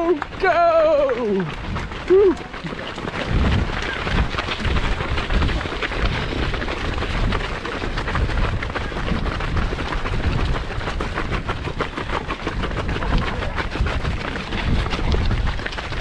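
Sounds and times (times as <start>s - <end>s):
runners' footsteps: 0.0s - 16.0s
wind buffeting microphone: 0.0s - 16.0s.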